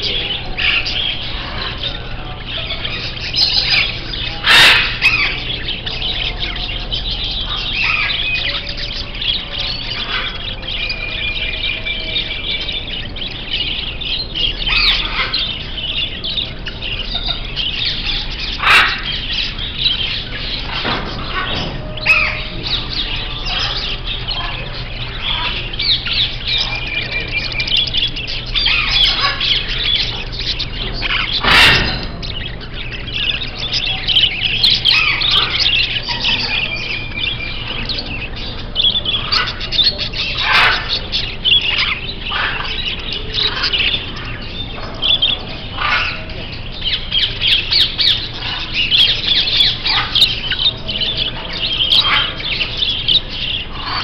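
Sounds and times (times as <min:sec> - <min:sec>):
caged birds chirping and squawking: 0:00.0 - 0:54.0.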